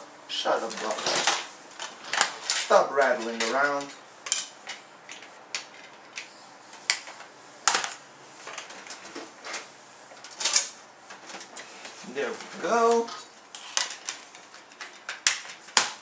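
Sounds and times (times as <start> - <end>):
plastic cd case clicks and clacks: 13.6 - 16.0.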